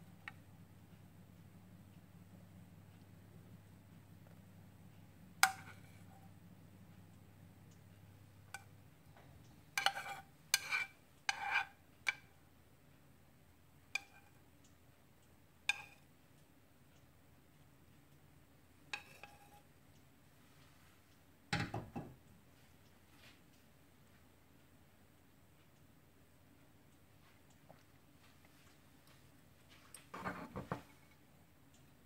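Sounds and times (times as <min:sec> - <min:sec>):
metal utensil scraping a pan: 0:09.8 - 0:12.2, 0:15.7 - 0:16.0, 0:18.9 - 0:19.7, 0:30.1 - 0:31.1.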